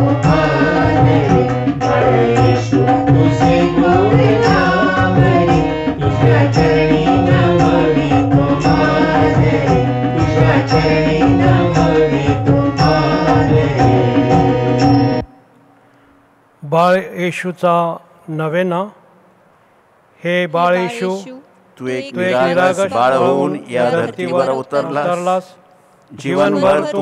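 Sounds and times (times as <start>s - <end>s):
percussion beat: 0.0s - 15.3s
sustained melodic instruments: 0.0s - 15.5s.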